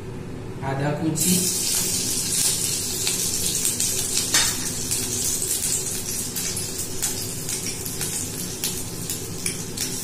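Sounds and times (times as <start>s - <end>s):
ginger sizzling in hot oil: 1.2s - 10.0s.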